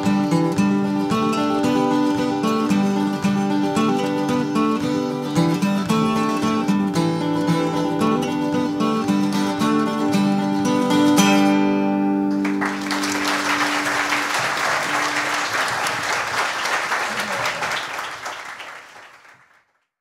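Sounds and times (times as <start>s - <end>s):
acoustic guitar: 0.0s - 16.3s
audience applause: 12.4s - 19.8s.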